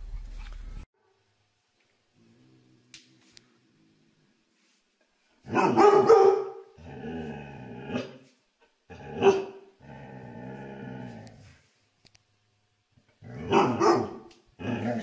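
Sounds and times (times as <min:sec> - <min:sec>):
dog barking: 0:05.5 - 0:06.7, 0:09.2 - 0:09.6, 0:13.5 - 0:14.3
dog growling: 0:06.8 - 0:08.2, 0:08.9 - 0:11.6, 0:13.1 - 0:15.0.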